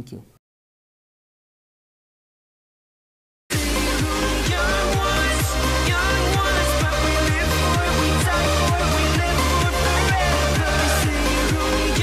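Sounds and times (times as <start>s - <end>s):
electronic dance music: 3.5s - 12.0s.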